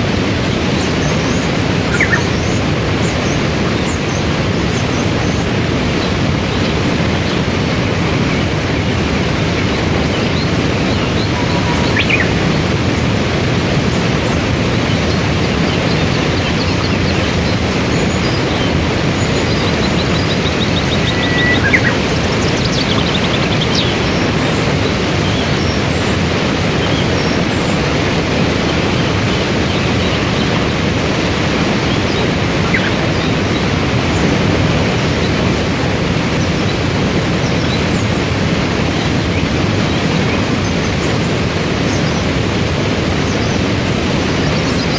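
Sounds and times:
waterfall and rapids roaring: 0:00.0 - 0:44.9
faint bird chirps: 0:19.5 - 0:22.0.

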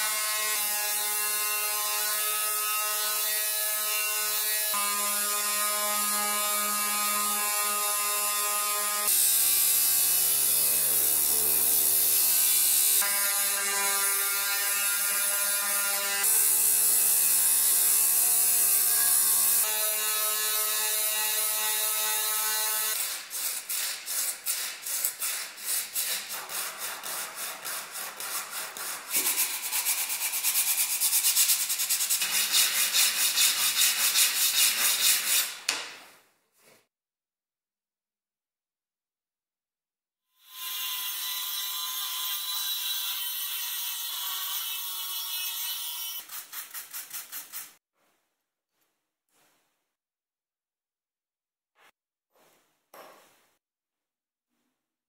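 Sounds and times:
hand sanding wood blocks: 0:22.9 - 0:35.8, 0:46.2 - 0:47.8.

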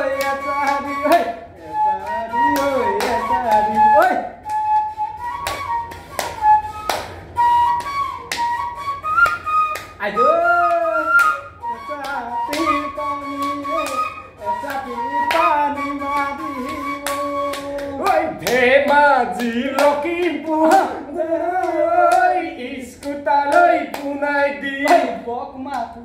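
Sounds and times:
flute-like melody: 0:00.0 - 0:18.5
person singing: 0:10.0 - 0:26.0.

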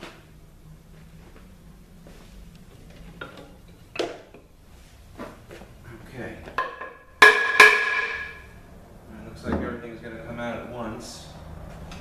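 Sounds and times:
loud ringing metallic clang: 0:06.6 - 0:08.6.

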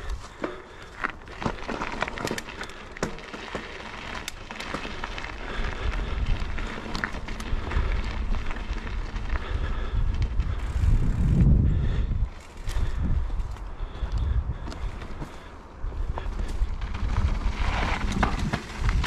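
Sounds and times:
bike tyres crunching on gravel: 0:00.0 - 0:19.0
wind rumble on microphone: 0:05.2 - 0:19.0.

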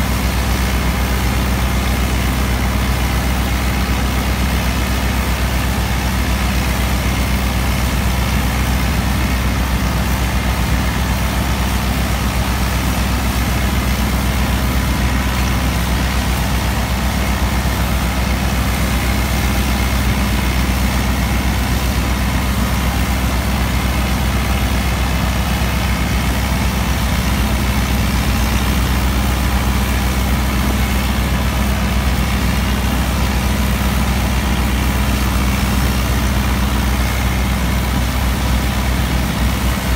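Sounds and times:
straw chopper running: 0:00.0 - 0:39.9
tractor diesel engine running: 0:00.0 - 0:39.9.

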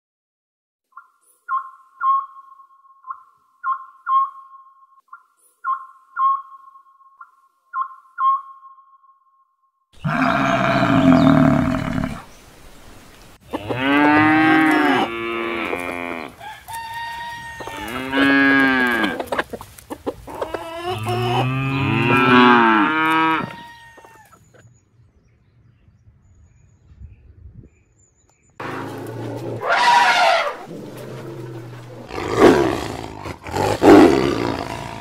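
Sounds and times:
cattle mooing: 0:10.0 - 0:12.2, 0:13.5 - 0:16.4, 0:17.5 - 0:19.3, 0:20.4 - 0:23.8, 0:28.6 - 0:35.0.

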